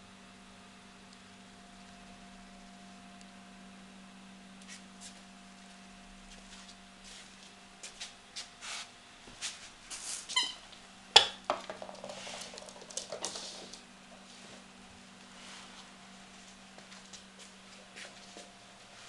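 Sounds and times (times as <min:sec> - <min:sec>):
faint low hum: 0:00.0 - 0:08.4
puppy squeaking: 0:10.3 - 0:10.7.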